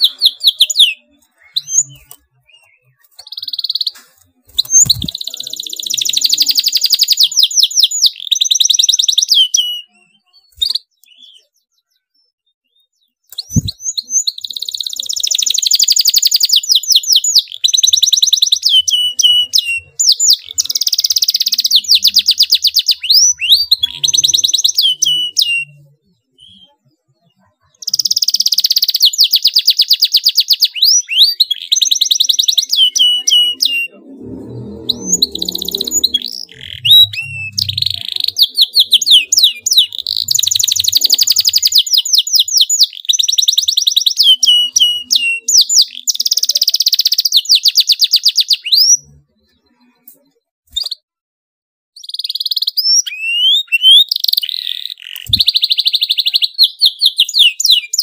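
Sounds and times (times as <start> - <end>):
canary singing fast trills: 0.0 - 51.1, 52.0 - 58.0
low rumble: 34.0 - 38.0.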